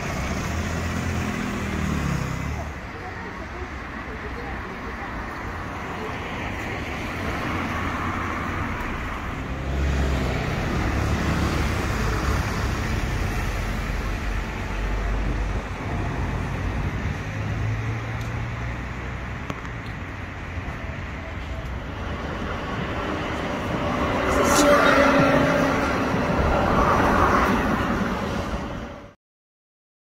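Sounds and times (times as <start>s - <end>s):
road traffic rumble: 0.0s - 29.2s.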